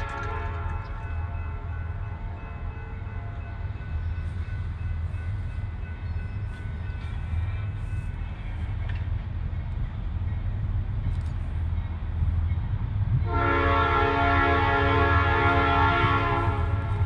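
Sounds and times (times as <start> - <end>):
train horn: 0.0 - 3.5, 13.2 - 17.0
train rumble: 0.0 - 17.0.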